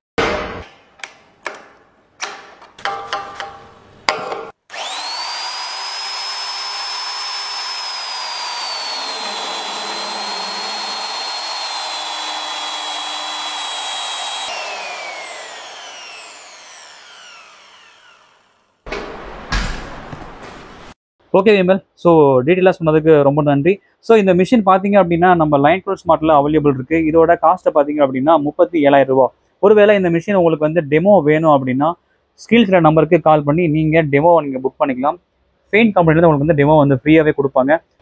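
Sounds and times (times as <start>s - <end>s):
core drill motor whining: 4.7s - 18.7s
cutter boring through steel: 4.7s - 18.7s
sharp knocks: 18.8s - 20.9s.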